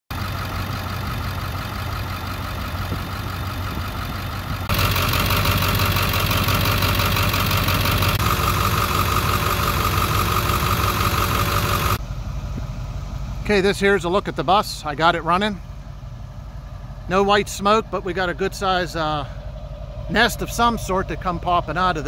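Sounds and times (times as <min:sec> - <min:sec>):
diesel engine idling: 0:00.1 - 0:22.0.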